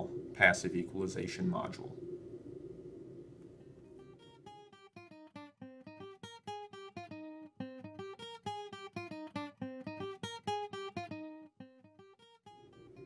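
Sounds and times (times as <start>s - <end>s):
acoustic guitar picking melody: 3.9s - 13.0s.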